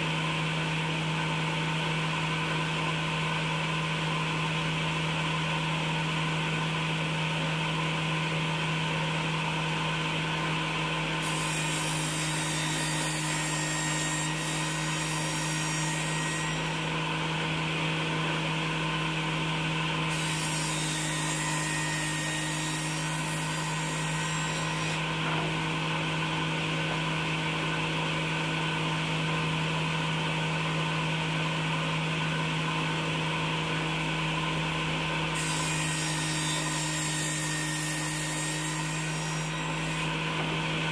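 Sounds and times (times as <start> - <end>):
saw cutting wood rasp: 11.2 - 16.9, 20.1 - 25.5, 35.4 - 40.6
table saw humming: 11.2 - 27.2, 35.1 - 40.9.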